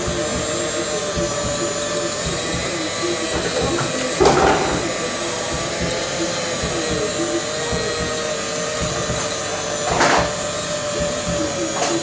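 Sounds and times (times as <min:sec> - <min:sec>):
electric hand mixer whining: 0:00.0 - 0:12.0.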